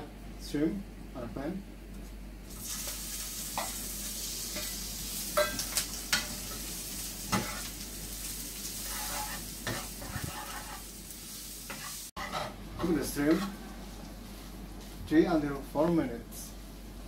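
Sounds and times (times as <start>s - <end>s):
shrimp sizzling in hot oil: 2.5s - 12.4s.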